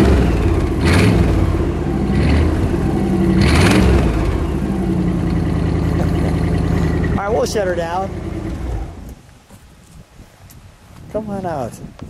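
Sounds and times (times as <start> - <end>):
car engine revving and idling: 0.0 - 9.1.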